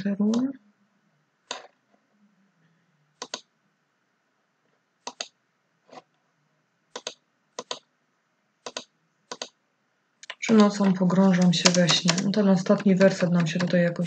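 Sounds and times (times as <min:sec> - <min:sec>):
computer mouse clicks: 0:01.4 - 0:01.8, 0:03.2 - 0:03.5, 0:05.0 - 0:06.1, 0:06.9 - 0:07.9, 0:08.6 - 0:09.6, 0:10.2 - 0:13.8.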